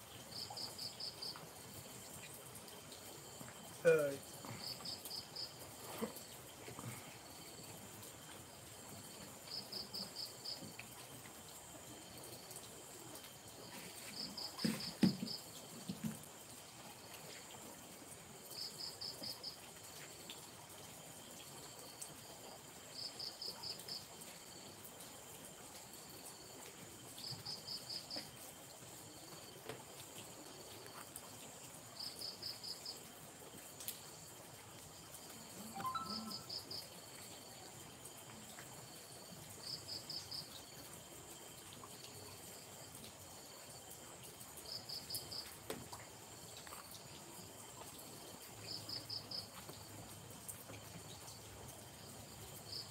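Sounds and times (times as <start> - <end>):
cricket chirping in bursts: 0.0 - 52.9
high-pitched insect drone: 35.6 - 36.8.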